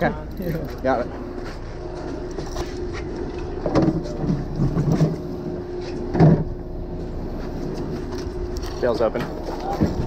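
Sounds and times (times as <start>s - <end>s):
boat engine humming: 0.0s - 10.0s
muffled voices: 8.6s - 10.0s.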